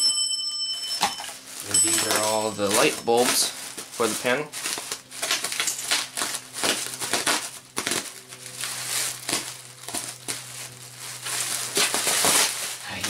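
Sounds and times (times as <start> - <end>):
bubble wrap crinkling and rustling: 1.3 - 13.0.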